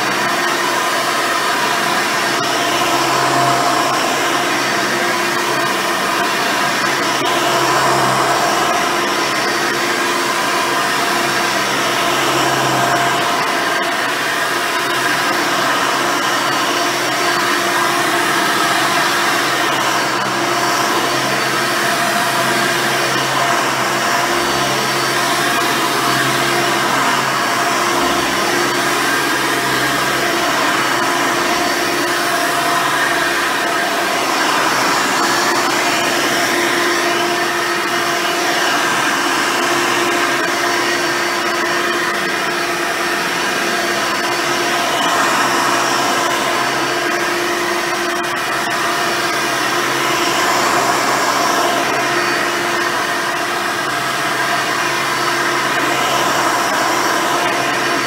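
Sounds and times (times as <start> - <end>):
vacuum cleaner on carpet: 0.0 - 58.0.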